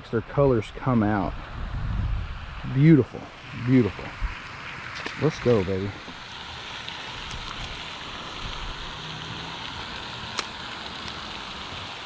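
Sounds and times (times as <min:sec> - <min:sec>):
fountain water splashing: 0:00.0 - 0:12.0.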